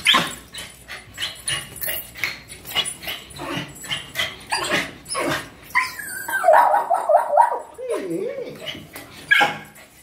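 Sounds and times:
small dogs whining and yipping: 3.3 - 9.7.

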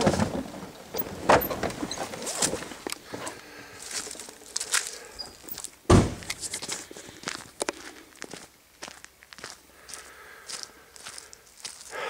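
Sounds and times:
footsteps crunching on leaves: 3.6 - 5.8, 6.4 - 12.0
heavy thump: 5.9 - 6.3.

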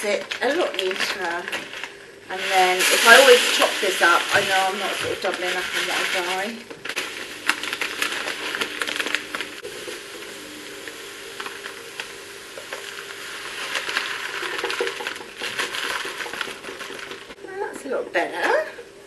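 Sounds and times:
salt granules pouring into tub: 2.3 - 17.4.

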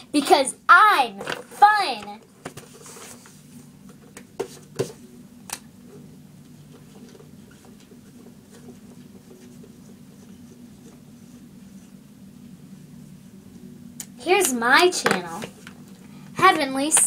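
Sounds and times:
steady low hum: 0.0 - 17.0
marker scratching on whiteboard: 7.4 - 12.0.

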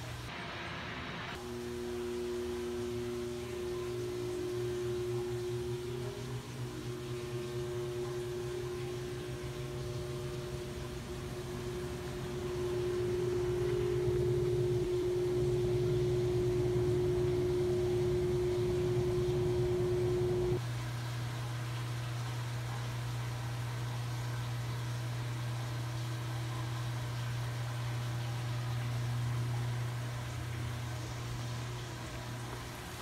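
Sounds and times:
held tone: 1.4 - 20.6
low droning hum: 1.4 - 24.4.

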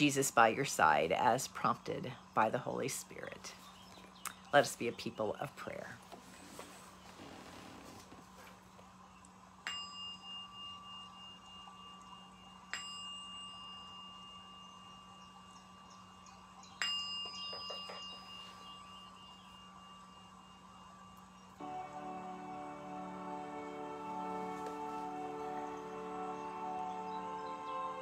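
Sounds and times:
chime strikes ringing: 16.8 - 22.5.

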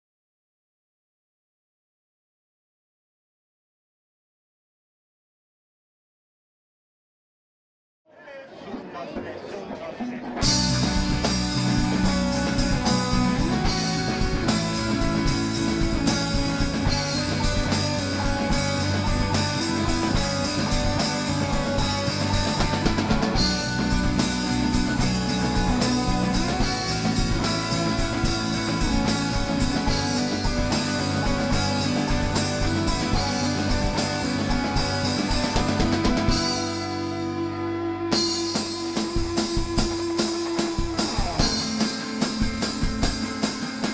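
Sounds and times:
rock band playing: 10.0 - 43.9.

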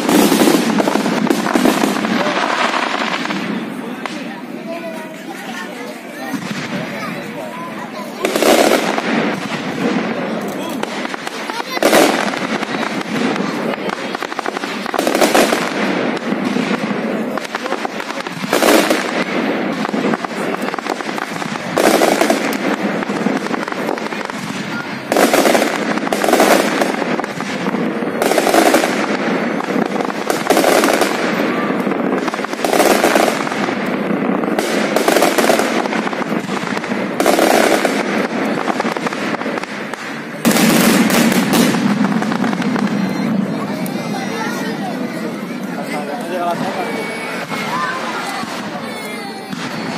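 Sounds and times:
fireworks display noise: 0.0 - 49.9.

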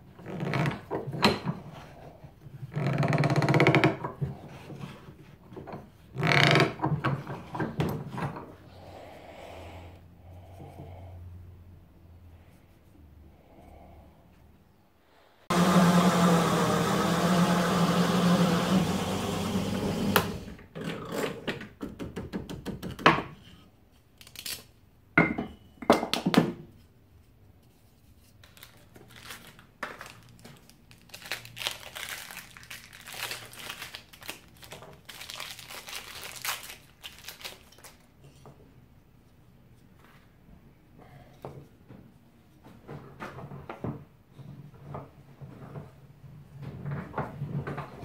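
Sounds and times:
drill press cutting wood: 15.5 - 20.6.

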